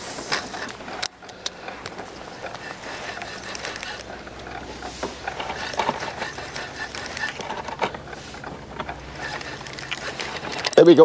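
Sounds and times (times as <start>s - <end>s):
fishing reel clicking: 0.6s - 4.6s, 5.2s - 10.9s.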